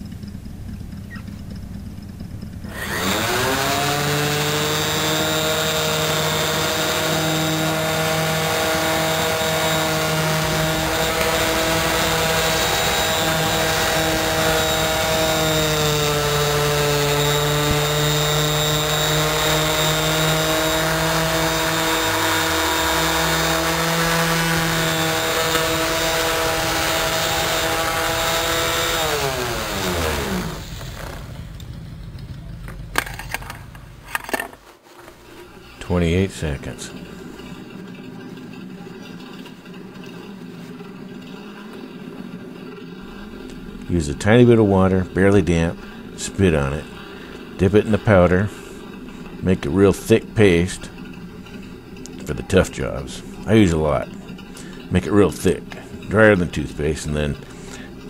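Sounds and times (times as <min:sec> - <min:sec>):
electric orbital sander running: 0:00.0 - 0:31.8.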